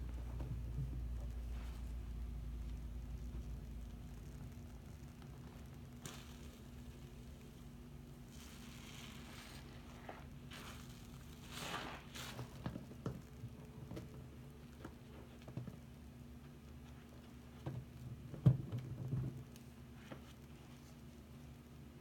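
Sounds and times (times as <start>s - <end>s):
foam crackling: 1.4s - 15.5s
wet sponge squelching: 8.3s - 12.7s.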